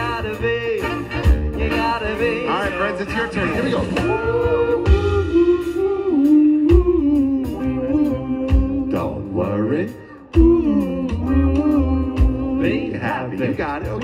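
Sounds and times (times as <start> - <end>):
live band playing: 0.0 - 14.0
person singing long sliding notes: 3.7 - 13.8.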